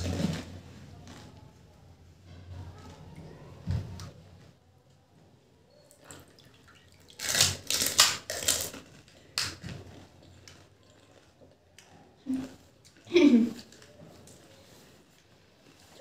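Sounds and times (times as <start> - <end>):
crunching of crisp food: 6.0 - 16.0.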